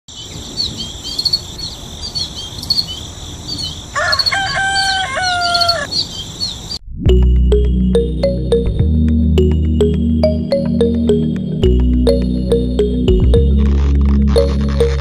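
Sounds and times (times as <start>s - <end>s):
small birds chirping: 0.1s - 6.8s
rooster crowing: 3.9s - 5.9s.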